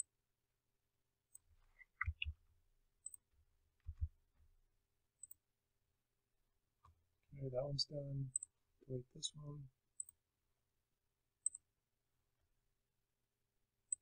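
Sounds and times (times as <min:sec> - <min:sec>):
mouse and keyboard clicks: 0:01.3 - 0:02.3, 0:05.2 - 0:05.4, 0:11.4 - 0:11.6.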